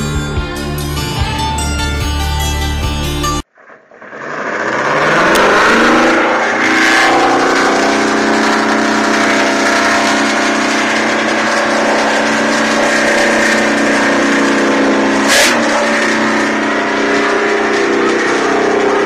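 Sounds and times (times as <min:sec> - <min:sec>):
diesel truck engine running: 0:00.0 - 0:19.0.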